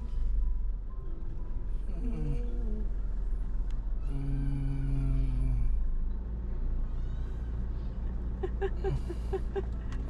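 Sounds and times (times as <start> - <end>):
steady low hum: 0.0 - 6.9
man humming: 1.9 - 3.0, 4.1 - 5.8.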